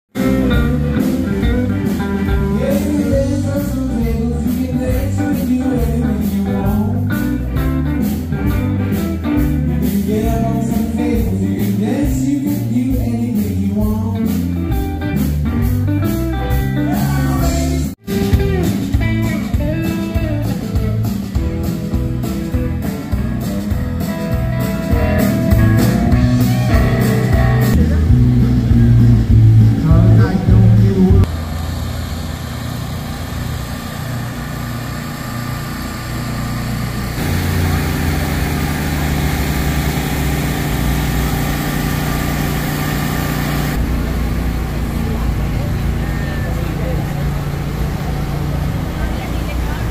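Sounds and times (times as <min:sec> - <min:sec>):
live blues-rock band: 0:00.1 - 0:31.3
generator engine humming: 0:00.1 - 0:49.9
person singing: 0:00.2 - 0:08.1, 0:09.3 - 0:14.8, 0:16.4 - 0:18.4, 0:29.7 - 0:31.3.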